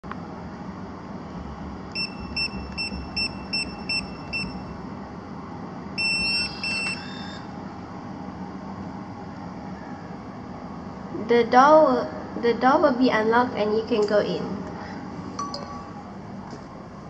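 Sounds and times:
keypad beeps: 2.0 - 4.6, 6.0 - 7.4.

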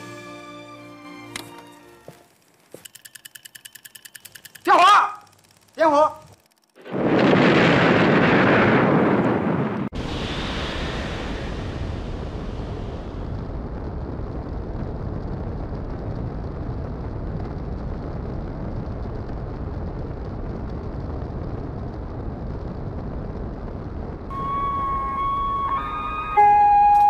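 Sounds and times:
rocket engines rumbling: 4.5 - 26.9
rocket engine hiss: 9.9 - 13.8.

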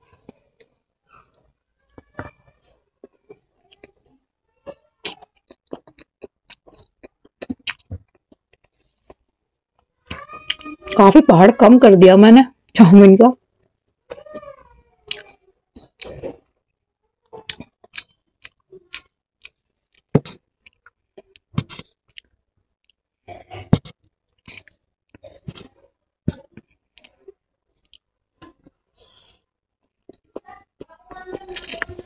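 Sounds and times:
chewing noodles with mouth smacks: 5.1 - 9.3, 17.4 - 23.0.

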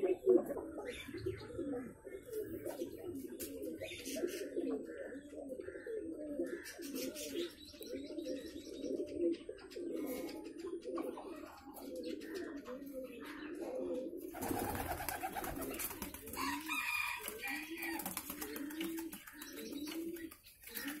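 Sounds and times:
chickens clucking: 0.0 - 21.0
higher chicken calls: 14.6 - 19.0.

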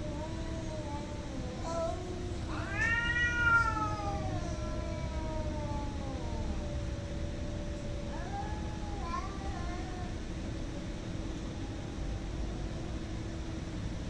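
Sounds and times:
cat high wail: 0.0 - 6.9, 7.9 - 10.2
cat low moan: 0.0 - 13.7.

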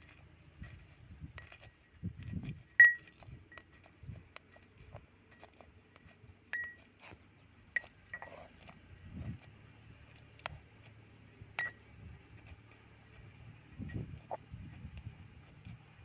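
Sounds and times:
pestle clinking in brass mortar: 2.7 - 3.9, 5.3 - 7.0, 11.6 - 11.9.

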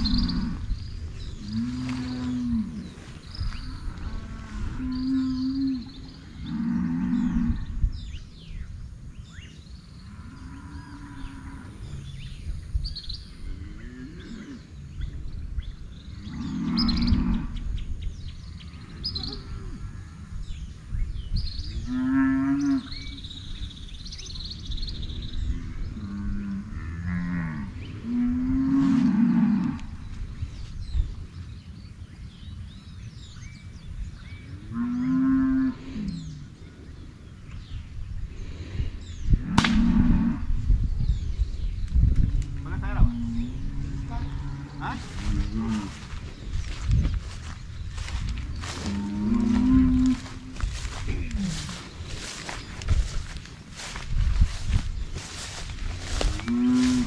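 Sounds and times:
small birds chirping: 0.0 - 57.0
cattle mooing: 1.4 - 2.8, 48.6 - 51.7.

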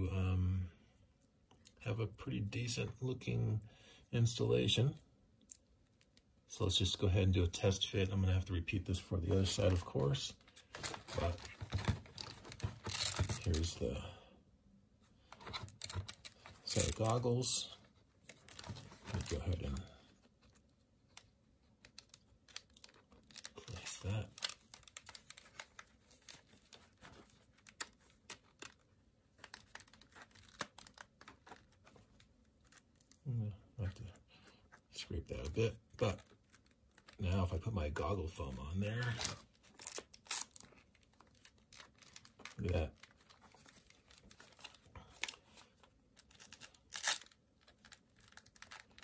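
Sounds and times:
velcro tearing: 21.1 - 28.8, 29.4 - 32.0, 32.6 - 33.2, 39.0 - 45.4, 46.2 - 49.0.

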